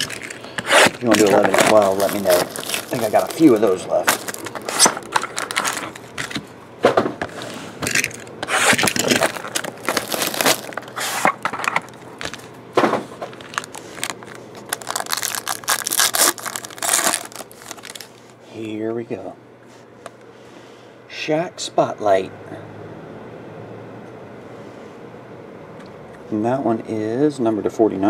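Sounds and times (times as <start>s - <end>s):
plastic wrap tearing and crinkling: 0.0s - 6.4s, 7.8s - 12.5s, 13.2s - 18.4s
foil packs rustling: 0.0s - 6.5s, 7.3s - 18.4s.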